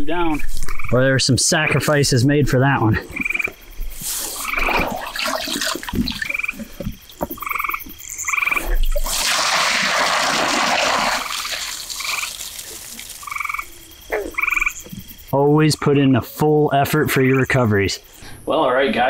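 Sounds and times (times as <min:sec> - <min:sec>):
frogs trilling: 0:00.0 - 0:19.0
wet waders rustling: 0:03.2 - 0:15.3
water pouring onto ground: 0:05.0 - 0:06.4, 0:08.9 - 0:13.9.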